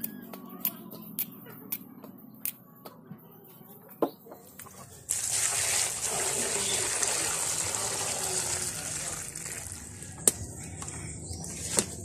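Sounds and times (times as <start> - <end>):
water pouring into pot: 5.1 - 10.0.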